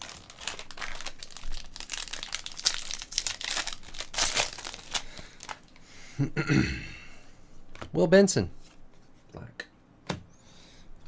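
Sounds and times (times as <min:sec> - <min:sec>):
card pack wrapper crinkling and tearing: 0:00.0 - 0:05.8.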